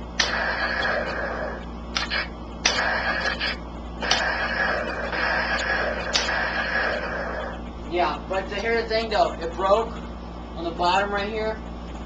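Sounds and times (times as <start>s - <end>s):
toy gun electronic firing sound: 0.2s - 1.2s, 2.0s - 7.0s.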